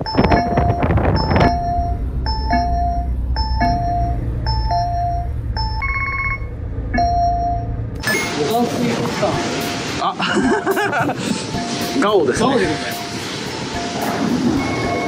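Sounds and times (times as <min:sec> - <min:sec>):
steady low hum: 0:00.0 - 0:08.4
electronic two-tone chime: 0:00.0 - 0:10.0, 0:11.5 - 0:15.0.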